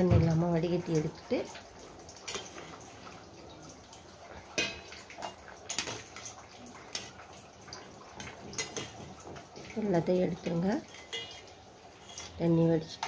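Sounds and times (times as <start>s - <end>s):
water boiling in a pot: 0.0s - 13.0s
skimmer clinking against pot: 10.7s - 12.4s.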